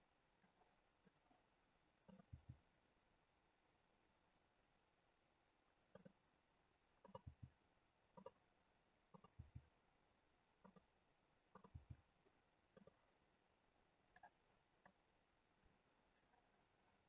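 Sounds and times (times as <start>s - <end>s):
computer mouse and keyboard clicks: 2.1s - 2.6s, 5.9s - 6.2s, 7.0s - 7.5s, 8.2s - 8.4s, 9.2s - 9.6s, 10.6s - 10.9s, 11.5s - 12.0s, 12.8s - 13.0s.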